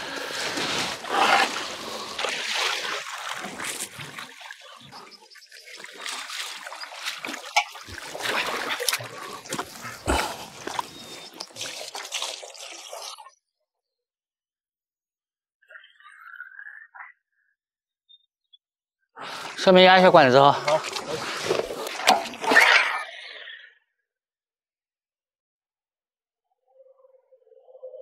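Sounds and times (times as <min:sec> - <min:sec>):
water splashing and trickling: 0:00.0 - 0:13.4, 0:19.3 - 0:23.1.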